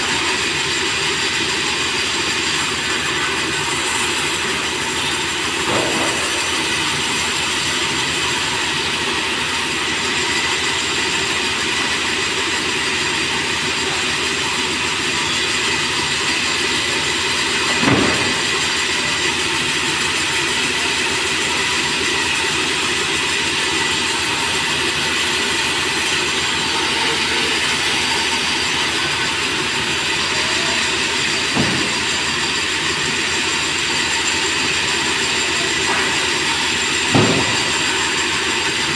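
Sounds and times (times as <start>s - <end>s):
band saw running: 0.0s - 38.9s
sharp knock: 5.6s - 6.8s, 17.7s - 18.6s, 31.5s - 32.1s, 37.1s - 38.1s.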